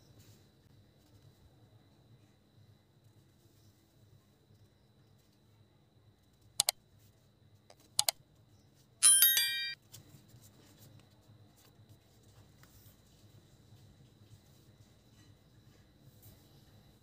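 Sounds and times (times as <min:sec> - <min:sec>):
mouse clicks: 0:07.7 - 0:08.2
notification bell chime: 0:09.0 - 0:09.8.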